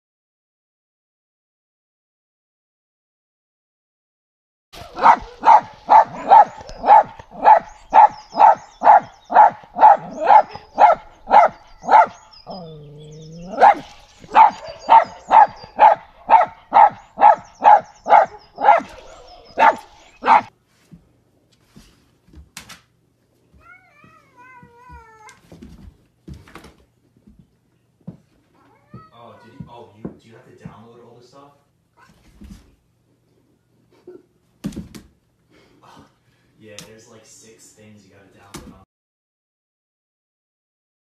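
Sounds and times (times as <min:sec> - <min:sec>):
small dog barking rapidly: 0:04.8 - 0:12.8, 0:13.4 - 0:20.5
dog drawn-out call: 0:04.8 - 0:20.5
faint cat meow: 0:23.6 - 0:25.4, 0:28.5 - 0:29.7, 0:31.9 - 0:32.4.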